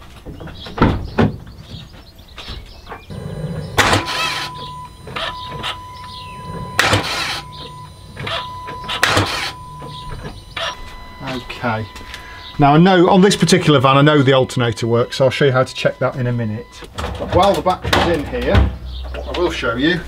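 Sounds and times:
van starter motor cranking: 0:03.0 - 0:20.0
steady high beep: 0:03.1 - 0:16.9.

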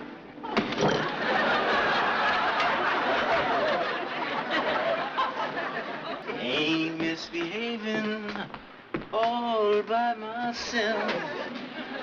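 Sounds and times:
crowd laughing: 0:00.3 - 0:07.0, 0:10.6 - 0:12.0.

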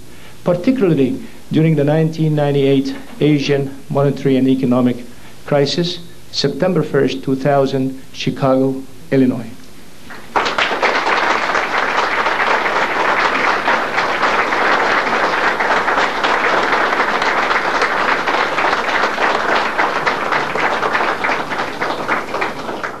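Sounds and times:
audience applauding: 0:10.1 - 0:23.0.

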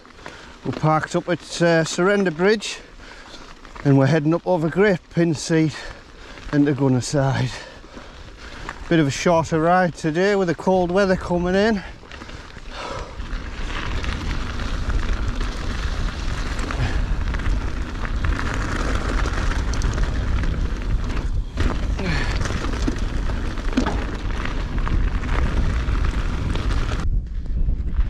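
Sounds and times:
wind rumble on microphone: 0:10.8 - 0:28.0.

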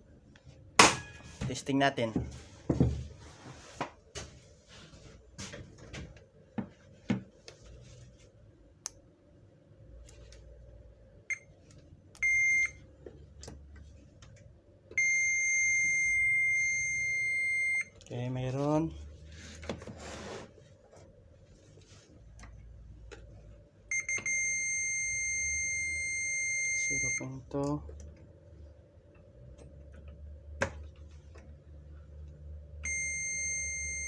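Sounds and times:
multimeter beeps: 0:11.3 - 0:11.5, 0:12.2 - 0:12.8, 0:15.0 - 0:18.0, 0:23.9 - 0:27.4, 0:32.8 - 0:34.0
steady held beep tone: 0:12.2 - 0:12.8, 0:15.0 - 0:17.9, 0:23.9 - 0:27.3, 0:32.8 - 0:34.0.

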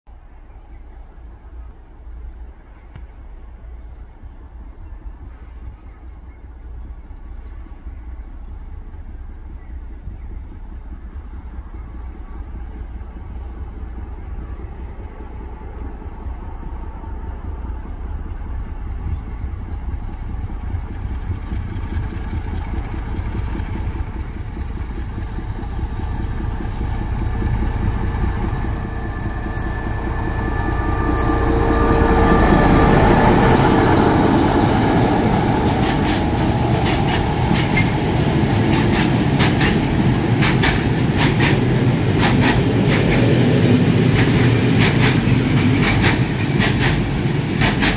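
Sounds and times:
diesel locomotive engine rumble: 0:00.1 - 0:47.9
train wheels clacking over rail joints: 0:20.4 - 0:31.8, 0:33.5 - 0:47.9.

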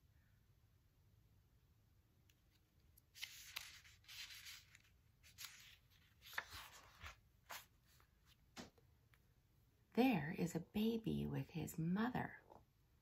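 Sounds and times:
paper page turning: 0:02.3 - 0:08.4.

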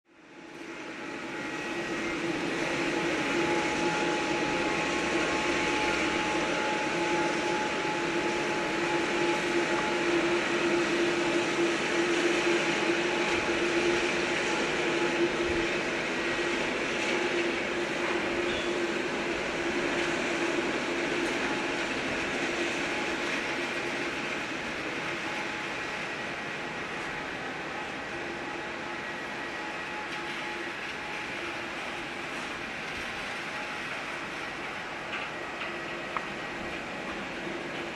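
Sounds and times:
jet engines running: 0:00.2 - 0:37.9.

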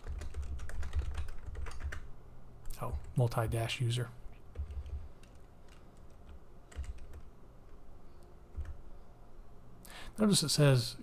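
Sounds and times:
keyboard keys clicking: 0:00.0 - 0:02.1, 0:04.5 - 0:07.3, 0:08.5 - 0:08.8.

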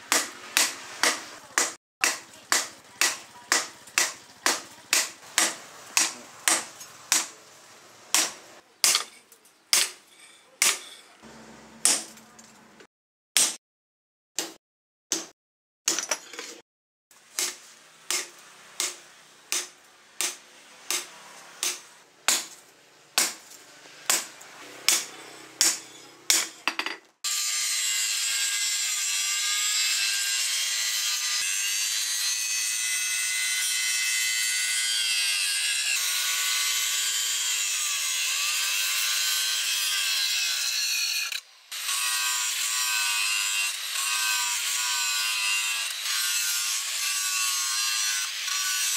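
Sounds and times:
angle grinder grinding steel: 0:27.3 - 0:48.9.

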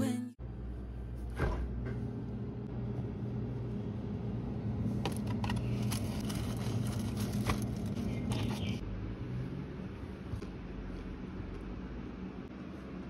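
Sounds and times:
refrigerator humming: 0:00.0 - 0:13.0
plastic and cardboard crinkling: 0:04.9 - 0:08.8.

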